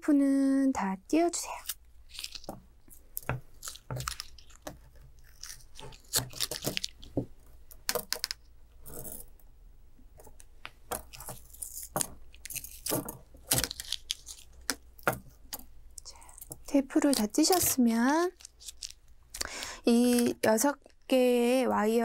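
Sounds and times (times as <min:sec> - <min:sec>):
paper tape ripping: 0:01.5 - 0:02.6, 0:03.5 - 0:07.1, 0:11.1 - 0:14.8, 0:17.0 - 0:20.3.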